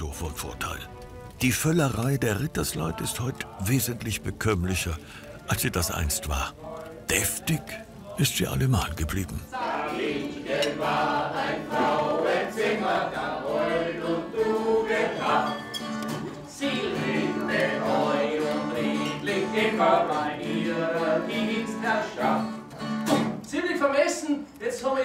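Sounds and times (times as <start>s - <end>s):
person singing: 2.1s - 11.0s
strummed acoustic guitar: 11.6s - 23.5s.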